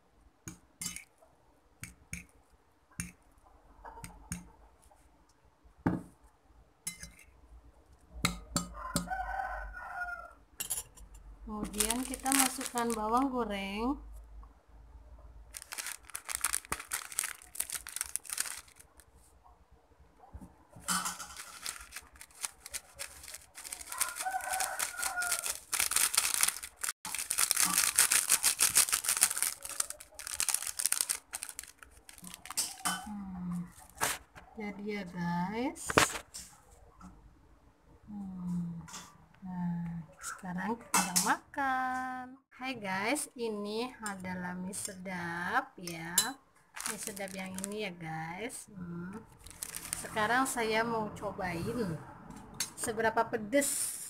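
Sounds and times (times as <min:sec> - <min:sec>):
fork clinking against ceramic bowl: 0:06.9 - 0:07.3
rooster crowing: 0:08.7 - 0:10.4, 0:23.7 - 0:25.6
flakes pattering: 0:11.6 - 0:13.5, 0:15.5 - 0:19.1, 0:20.9 - 0:34.3, 0:46.8 - 0:47.8, 0:49.3 - 0:50.3
plastic sachet crinkling: 0:11.6 - 0:13.5, 0:15.5 - 0:19.2, 0:20.9 - 0:33.1, 0:46.8 - 0:47.8, 0:49.3 - 0:50.3.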